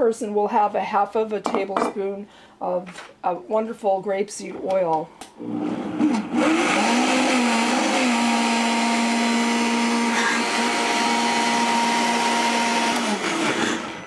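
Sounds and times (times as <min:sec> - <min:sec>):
blender motor whining: 0:05.4 - 0:14.0.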